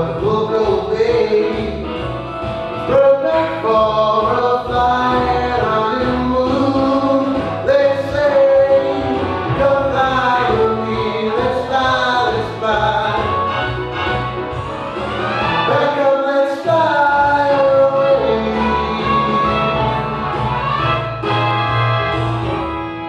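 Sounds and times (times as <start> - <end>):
man singing into microphone: 0.0 - 2.0, 2.8 - 13.4, 15.7 - 19.8
instrumental backing music: 0.0 - 23.0.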